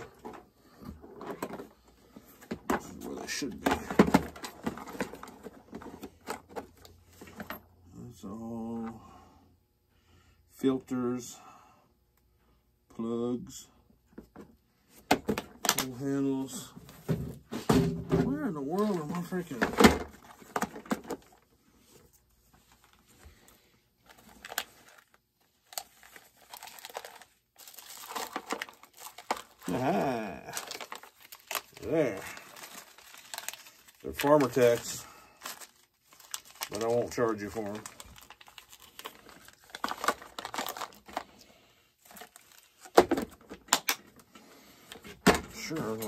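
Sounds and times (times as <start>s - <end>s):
rustling of plastic bags: 0.0s - 7.4s, 18.3s - 46.0s.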